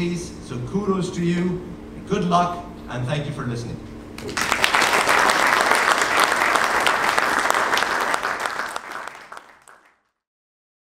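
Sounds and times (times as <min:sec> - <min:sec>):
audience applauding: 0:04.2 - 0:10.1.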